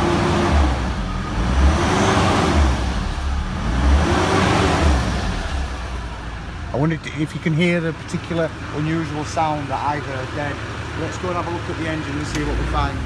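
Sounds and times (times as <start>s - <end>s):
car engine revving: 0.0s - 13.0s.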